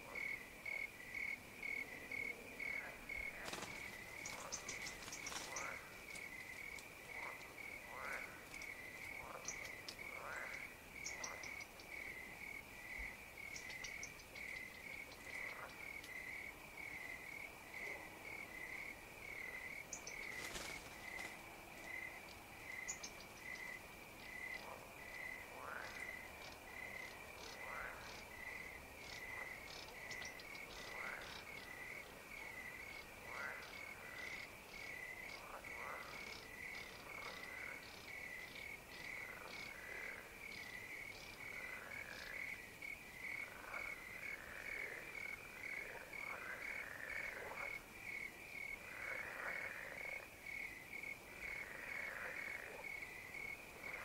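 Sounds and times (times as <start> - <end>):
crickets chirping: 0.0 - 54.0
frogs calling: 0.0 - 54.0
faint high ticks: 8.4 - 11.6, 15.3 - 16.2.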